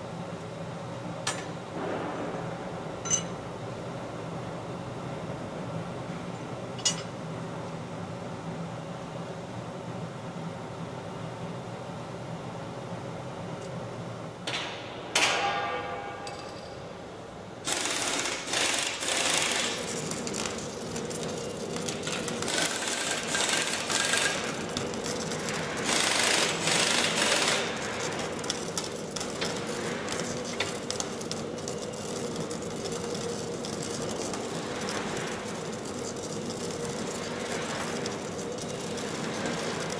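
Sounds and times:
steady hum: 0:00.0 - 0:39.9
welding arc crackling and spitting: 0:17.6 - 0:39.9.

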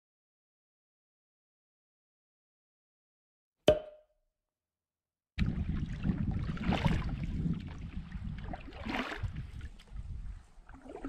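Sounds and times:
water splashing around canoe: 0:05.4 - 0:11.0.

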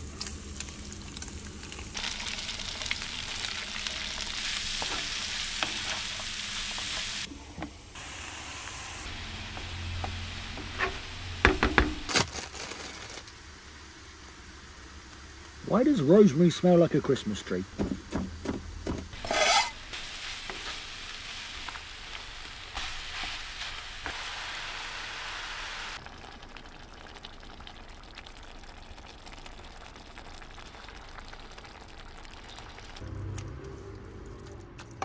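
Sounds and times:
food sizzling in a frying pan: 0:00.0 - 0:07.3, 0:07.9 - 0:13.2, 0:19.2 - 0:33.0
low hum: 0:33.0 - 0:35.0.

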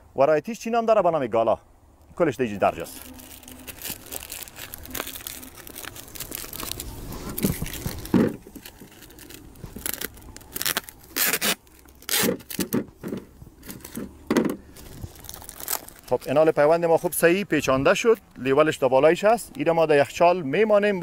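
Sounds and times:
paper crinkling and rustling: 0:02.7 - 0:17.3
tape tearing: 0:02.8 - 0:14.1, 0:14.7 - 0:16.5.

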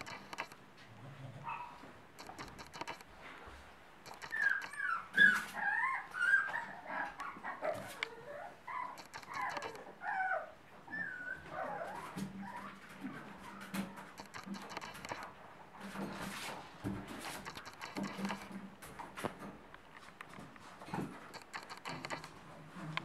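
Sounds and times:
puppies squeaking and whimpering: 0:04.1 - 0:15.3.

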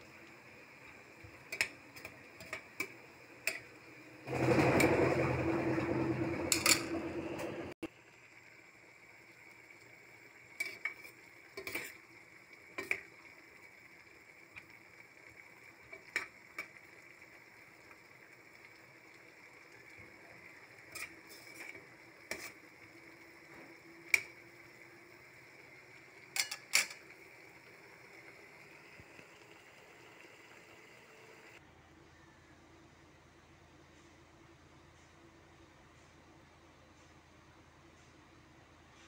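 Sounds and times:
soup simmering: 0:00.0 - 0:31.6
metal ladle clinking on pot: 0:26.4 - 0:27.0
faint hum: 0:27.0 - 0:39.0.

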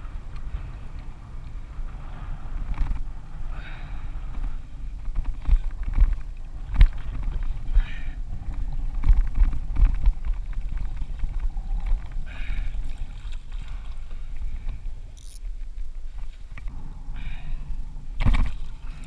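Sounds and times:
wind rumbling on microphone: 0:00.0 - 0:19.0
water splashing against kayak hull: 0:04.9 - 0:16.6.

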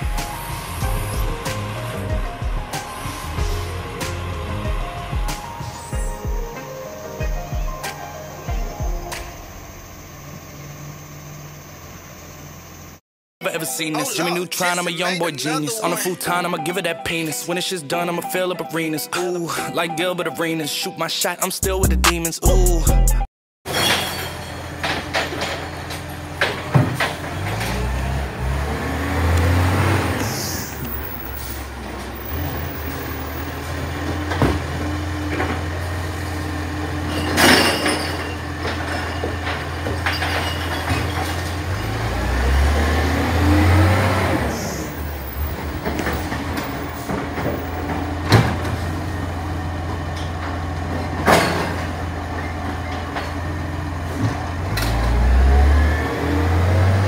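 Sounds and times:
garbage truck engine running: 0:00.0 - 0:13.0, 0:21.6 - 0:57.0
bins banging and clattering: 0:23.7 - 0:28.4, 0:30.8 - 0:43.0, 0:44.9 - 0:55.3.

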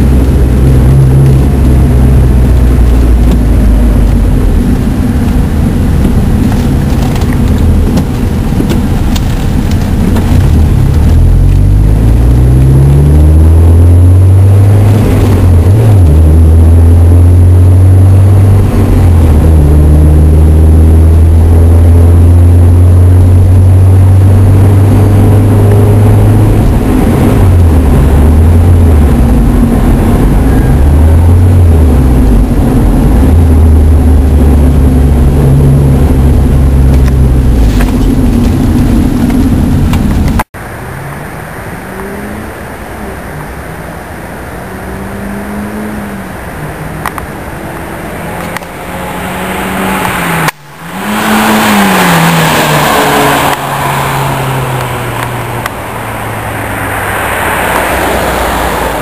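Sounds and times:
car engine while driving: 0:00.0 - 0:59.0.

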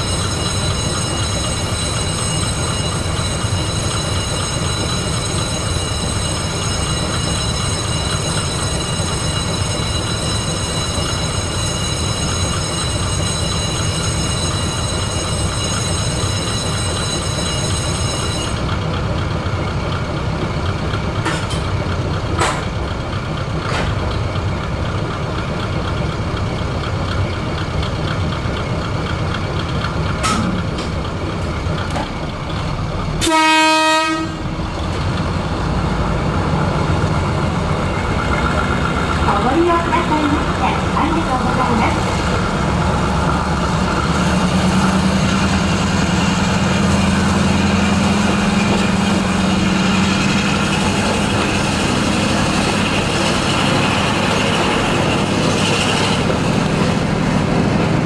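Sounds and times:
diesel engine idling: 0:18.7 - 0:33.2.

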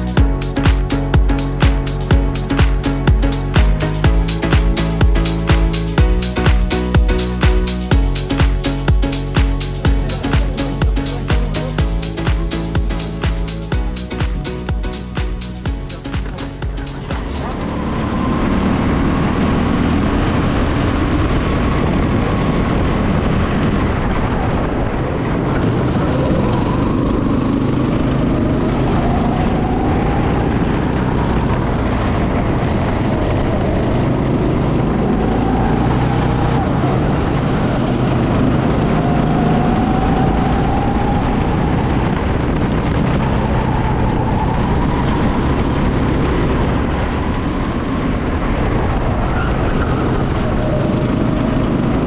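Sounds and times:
go-kart engine revving: 0:17.1 - 0:23.9, 0:25.3 - 0:52.0.

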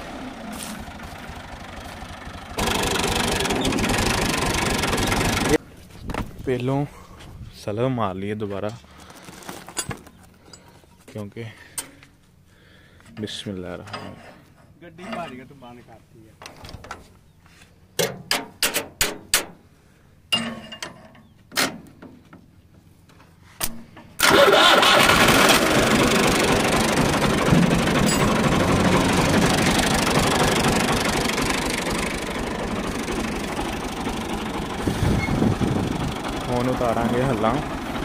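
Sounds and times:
tractor engine running: 0:00.0 - 0:06.4, 0:24.0 - 0:38.0.

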